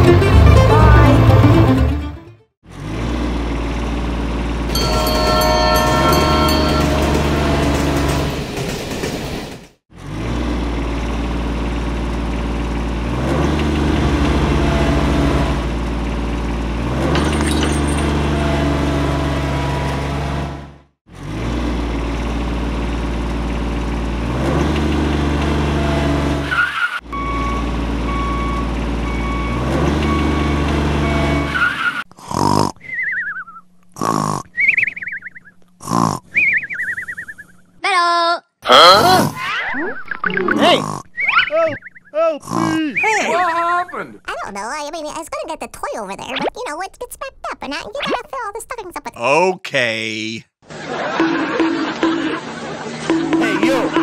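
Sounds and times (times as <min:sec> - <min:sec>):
engine sound effect drone: 0:02.7 - 0:32.0
cartoon sound effects: 0:38.7 - 0:41.8, 0:46.2 - 0:46.8.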